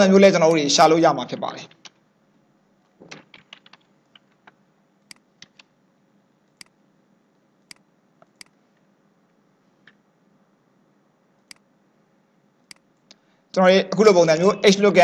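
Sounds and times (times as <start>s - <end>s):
computer keyboard clicks: 3.1s - 5.7s.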